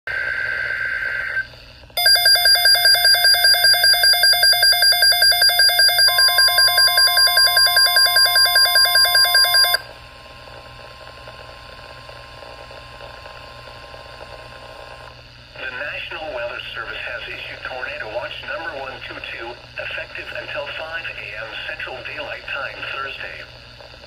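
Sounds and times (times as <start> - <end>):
rapid beeping alarm: 2.0 - 9.8
steady data tone: 2.0 - 9.8
steady warning tone: 2.0 - 9.8
faint radio hiss: 15.6 - 23.6.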